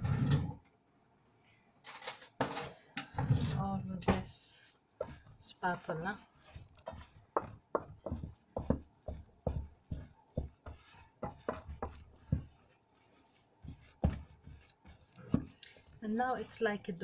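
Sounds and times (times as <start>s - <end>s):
wooden spatula scraping metal bowl: 3.1s - 17.0s
spatula knocking on bowl: 5.0s - 16.6s.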